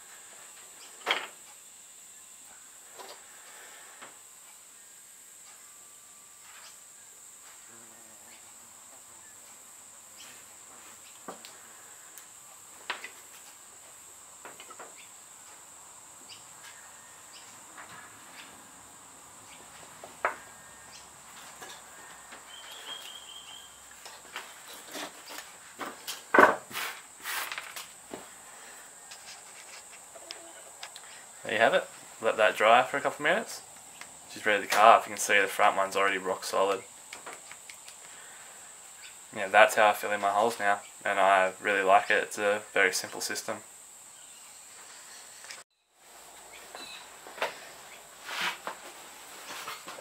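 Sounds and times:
crickets chirring: 0.0 - 50.0
knocks and brushing: 24.0 - 28.4, 29.1 - 30.3, 46.4 - 50.0.

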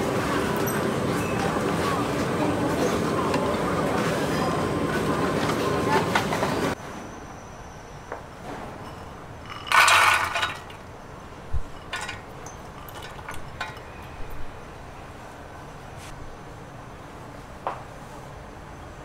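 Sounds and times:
glass and dishes clinking: 8.8 - 10.9, 11.5 - 14.5
dishes clattering: 8.9 - 10.8, 11.6 - 14.0.

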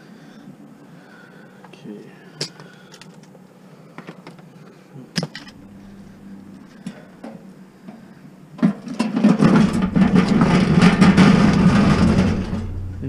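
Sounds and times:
faint low hum: 0.0 - 13.0
scrap items knocking in truck bed: 8.6 - 13.0.

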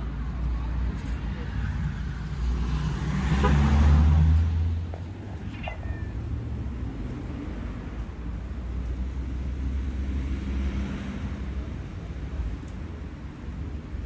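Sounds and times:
passing vehicle rumble: 0.0 - 14.0
street traffic: 0.0 - 14.0
cat meowing: 5.4 - 6.3.

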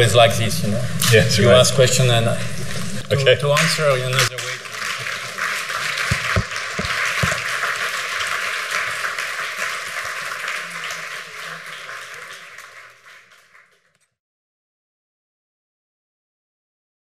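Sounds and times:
audience applauding: 4.1 - 14.1.

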